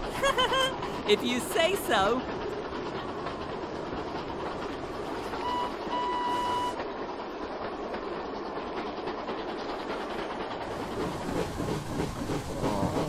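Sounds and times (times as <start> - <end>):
toy steam train rumbling: 0.0 - 13.0
steam whistle toots: 5.4 - 6.8.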